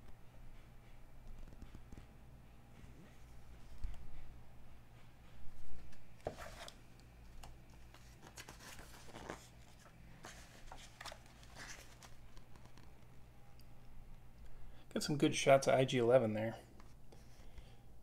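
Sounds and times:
magazine pages rustling: 5.8s - 13.1s.

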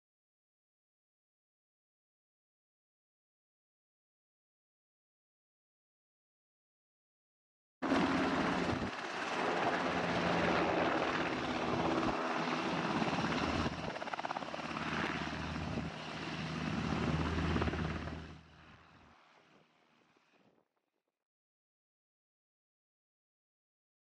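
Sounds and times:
helicopter flying low: 7.8s - 19.6s.

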